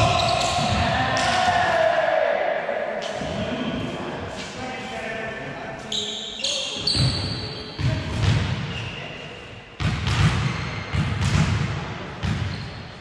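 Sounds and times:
volleyball thudding: 9.8 - 12.5.

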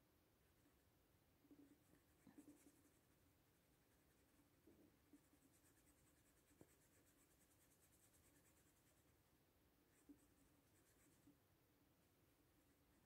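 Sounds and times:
paintbrush scratching on paper: 1.5 - 9.3, 9.9 - 11.4.

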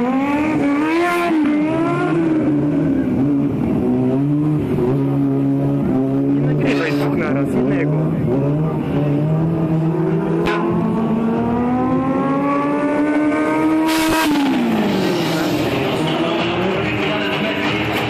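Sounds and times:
motorcycle engine revving: 0.0 - 18.0
short hissing burst: 13.9 - 15.8.

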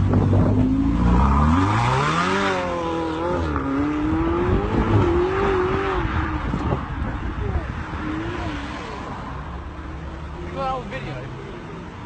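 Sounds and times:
sports car engine revving: 0.0 - 9.0.

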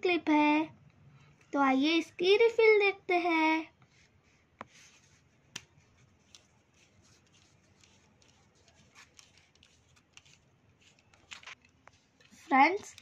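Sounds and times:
pen ticks and rubbing: 5.5 - 13.0.

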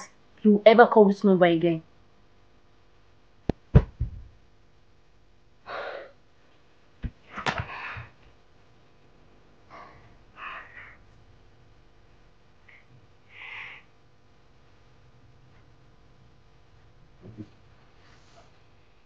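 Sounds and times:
woman breathing hard: 5.7 - 6.2, 7.6 - 8.2, 9.7 - 11.1, 12.7 - 13.9.

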